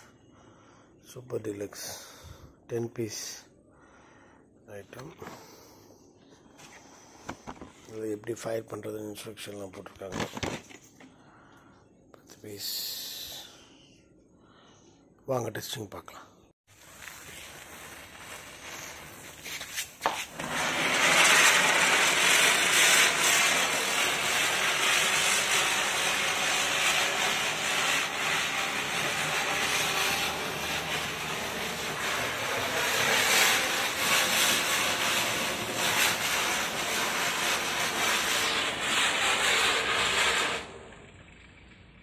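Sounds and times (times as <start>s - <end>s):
spinning firework hissing: 16.7s - 42.0s.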